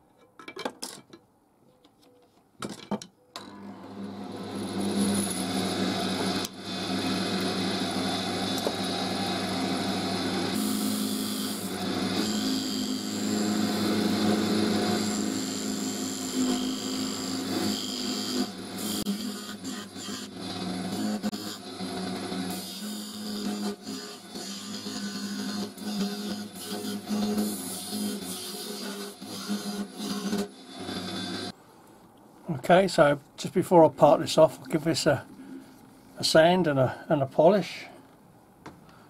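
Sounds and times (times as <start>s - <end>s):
wood lathe humming: 3.6s - 31.6s.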